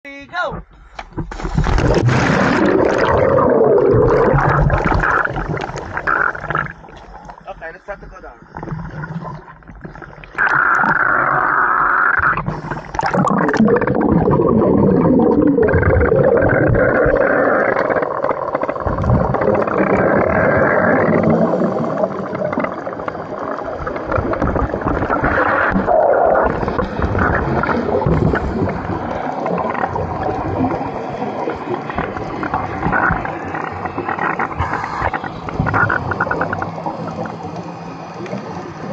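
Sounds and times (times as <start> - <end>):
muffled underwater rumbling: 0.5 - 38.9
camera plunging into water: 1.1 - 7.1
divers' exhaled bubbles: 1.1 - 38.9.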